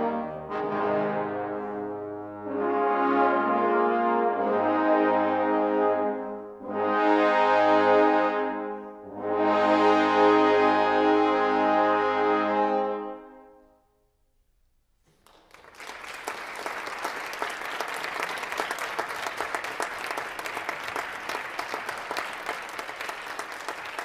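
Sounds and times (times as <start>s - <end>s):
brass chord echo: 0.0s - 14.1s
audience applauding: 15.1s - 24.0s.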